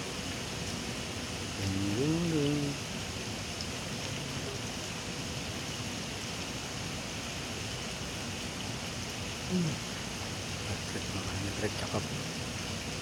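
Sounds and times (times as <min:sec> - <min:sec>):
water rushing and splashing: 0:00.0 - 0:13.0
man's voice: 0:01.6 - 0:02.8, 0:10.7 - 0:12.2.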